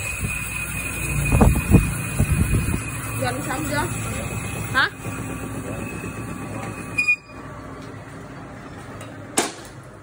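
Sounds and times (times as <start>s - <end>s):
metal lathe whirring: 0.0s - 8.2s
sharp squeal and clunk: 5.1s - 7.4s.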